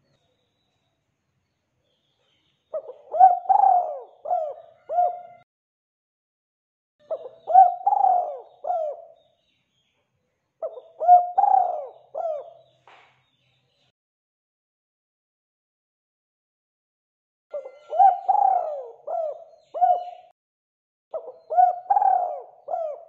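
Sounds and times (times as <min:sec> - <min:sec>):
dove cooing: 0:02.7 - 0:05.4, 0:07.0 - 0:09.2, 0:10.6 - 0:12.7, 0:17.5 - 0:20.3, 0:21.1 - 0:23.0.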